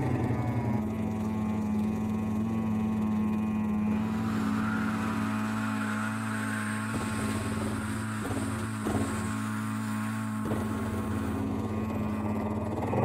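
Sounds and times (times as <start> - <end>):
concrete mixer engine running: 0.0 - 13.0.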